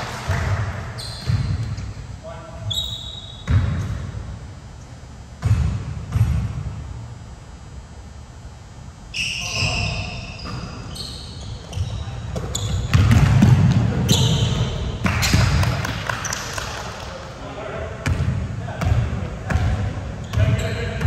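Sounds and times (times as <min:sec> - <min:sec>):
basketball bouncing on gym floor: 0:00.0 - 0:02.0, 0:03.4 - 0:04.2, 0:05.4 - 0:06.8, 0:11.4 - 0:16.8, 0:18.0 - 0:21.0
shoe squeaks: 0:00.9 - 0:02.0, 0:02.6 - 0:03.5, 0:09.1 - 0:13.1, 0:14.0 - 0:15.4, 0:20.2 - 0:21.0.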